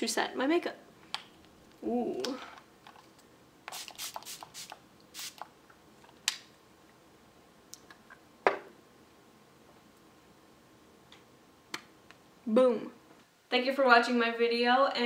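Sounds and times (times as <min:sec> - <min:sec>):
spray bottle spritzing: 0:03.7 - 0:05.5.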